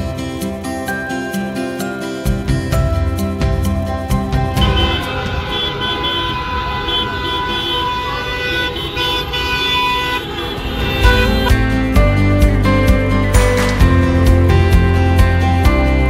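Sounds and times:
street traffic: 0.0 - 15.6
car horns honking: 4.5 - 12.0.

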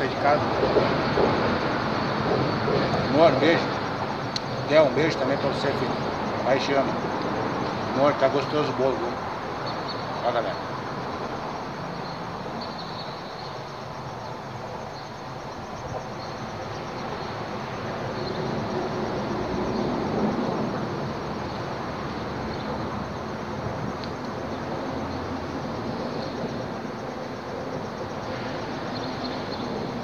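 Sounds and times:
highway traffic rumble: 0.0 - 30.0.

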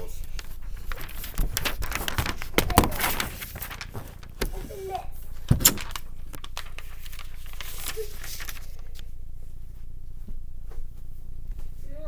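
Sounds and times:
scattered crackling: 0.0 - 9.1
low steady hum: 0.0 - 12.0.

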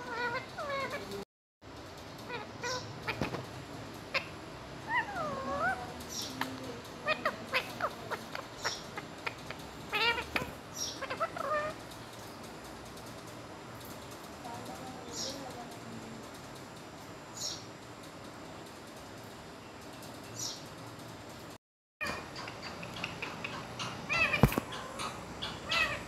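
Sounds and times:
parakeet calls: 0.0 - 1.2, 2.2 - 12.4, 22.0 - 26.0
parakeet chirps and clicks: 0.0 - 1.2, 2.2 - 19.3, 22.0 - 26.0.

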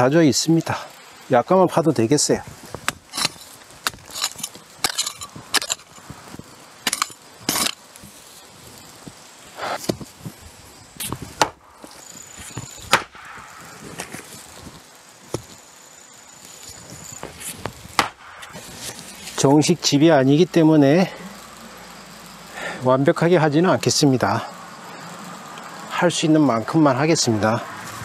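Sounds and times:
digging tool striking hard earth: 2.7 - 6.0, 6.8 - 7.8, 11.0 - 11.6, 12.6 - 14.3, 17.9 - 19.0.

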